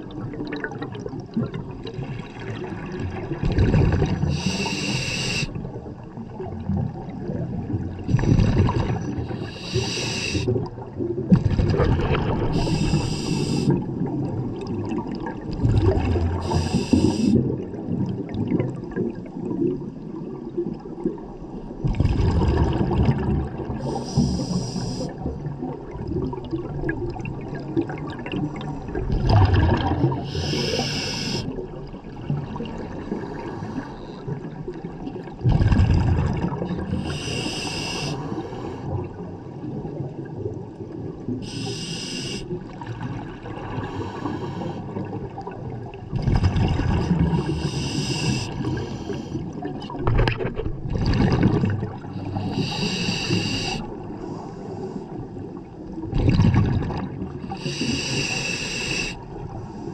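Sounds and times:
exhaled air bubbling underwater: 0.0s - 59.9s
regulator inhale hiss: 4.3s - 5.6s, 9.3s - 10.6s, 12.5s - 13.8s, 16.4s - 17.5s, 23.8s - 25.3s, 30.2s - 31.6s, 36.9s - 38.9s, 41.4s - 42.6s, 43.8s - 44.9s, 47.5s - 49.5s, 52.2s - 55.2s, 57.5s - 59.9s.

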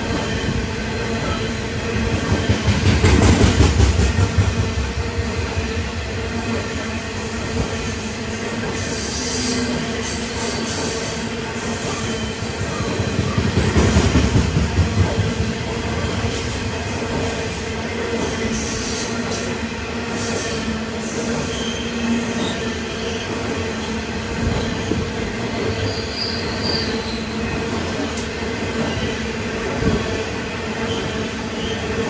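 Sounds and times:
train wagons rolling on rails: 0.0s - 32.0s
high wheel squeals: 25.6s - 27.6s.

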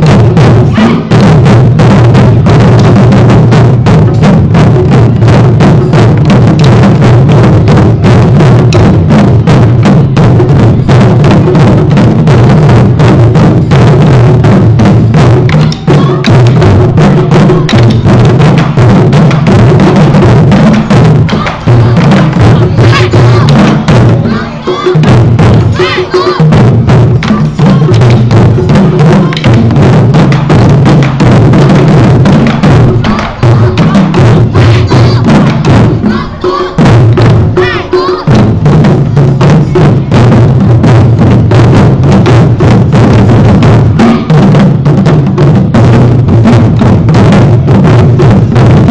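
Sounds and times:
taiko drums playing loud rhythm: 0.0s - 48.9s.

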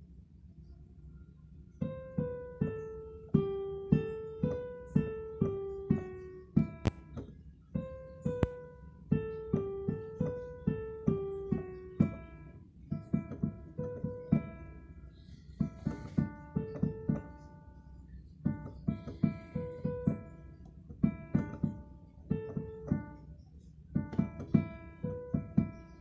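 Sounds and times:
electronic keyboard piano melody: 1.4s - 26.0s.

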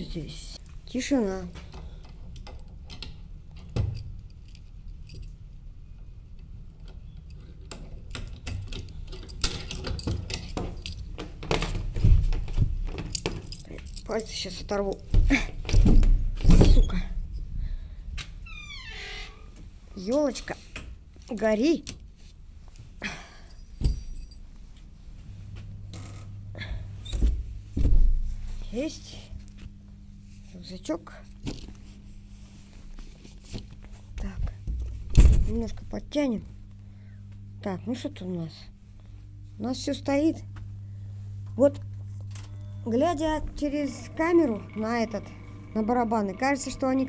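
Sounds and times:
low mains hum: 0.0s - 47.0s
keys jangling on ring: 3.9s - 5.4s, 8.1s - 15.0s, 23.4s - 24.5s
key turning in padlock: 7.2s - 14.4s
metallic jingle: 23.5s - 24.5s
heavy thumps: 25.5s - 28.4s.

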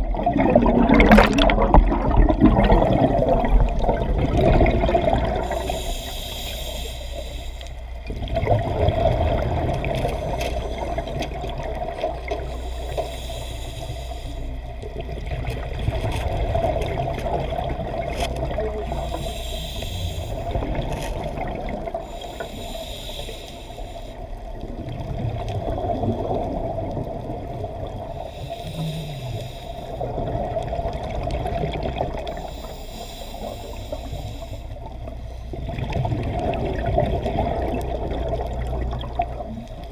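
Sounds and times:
exhaled bubbles rushing: 0.0s - 5.8s, 8.0s - 12.5s, 14.8s - 19.3s, 20.2s - 22.2s, 24.4s - 28.2s, 29.9s - 32.4s, 35.5s - 39.9s
regulator breathing underwater: 4.6s - 8.1s, 12.2s - 14.9s, 17.0s - 24.5s, 27.9s - 30.4s, 32.2s - 35.9s.

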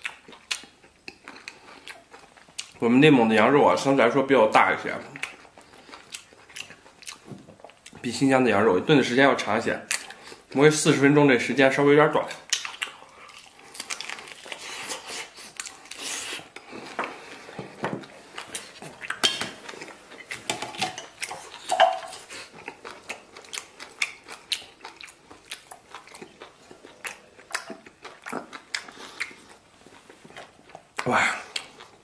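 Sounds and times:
man biting and chewing: 0.0s - 2.8s, 5.1s - 8.0s, 12.5s - 32.0s.

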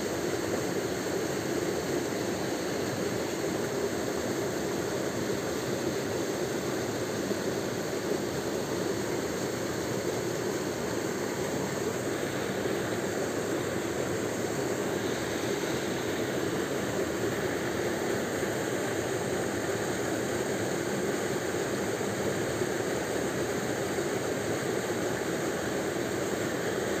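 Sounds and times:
rushing water: 0.0s - 27.0s.

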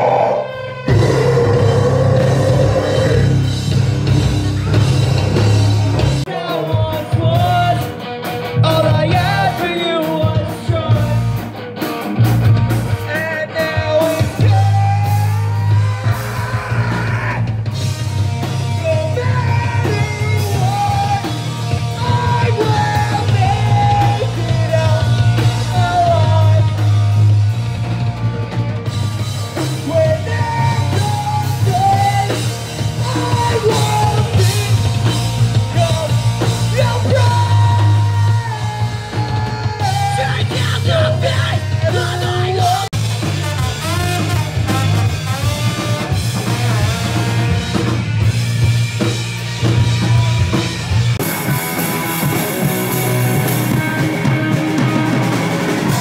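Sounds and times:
person singing: 0.0s - 3.5s, 18.7s - 27.0s, 29.8s - 42.9s
drum kit: 0.0s - 56.0s
electric guitars: 0.0s - 56.0s.

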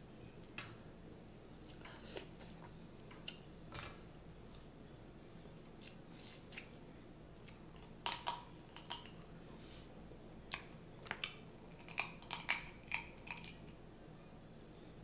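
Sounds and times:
crab shells cracking: 7.8s - 9.2s, 10.6s - 13.8s.

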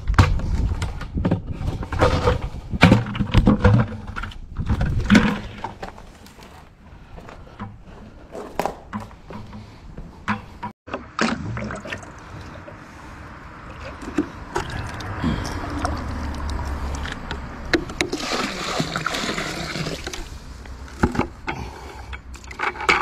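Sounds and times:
footsteps on gravel: 4.6s - 10.2s.

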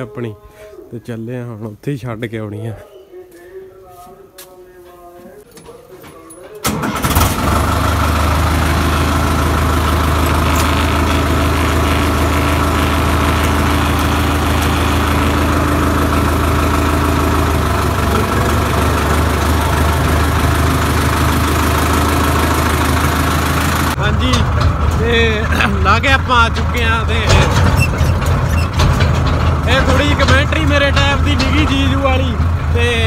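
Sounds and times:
tractor diesel engine idling: 6.6s - 33.0s.

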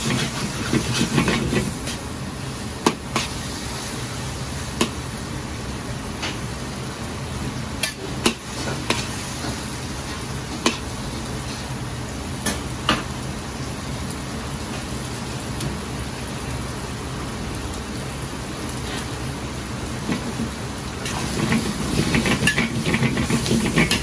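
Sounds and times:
ladle scraping a wok: 0.0s - 2.0s, 21.0s - 24.0s
pork sizzling in a wok: 0.0s - 24.0s.

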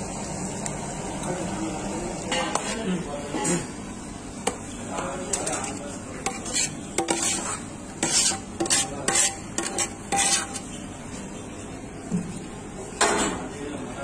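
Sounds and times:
metal spoon scraping a metal pan: 5.3s - 10.8s.

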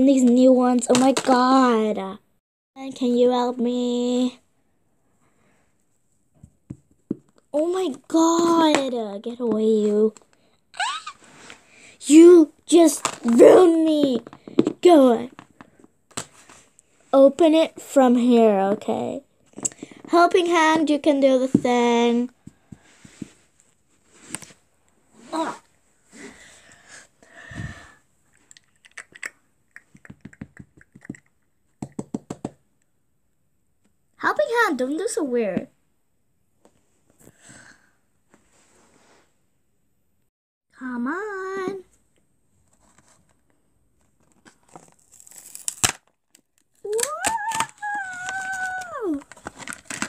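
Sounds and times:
packaging rustle: 44.2s - 50.0s.

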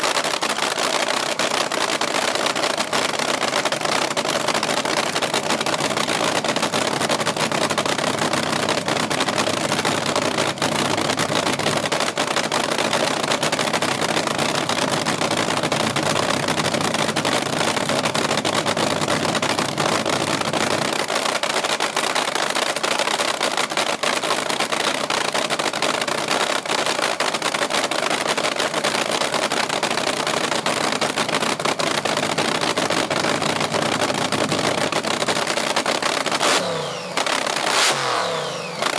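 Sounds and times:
drag car engine idling: 1.4s - 38.9s.

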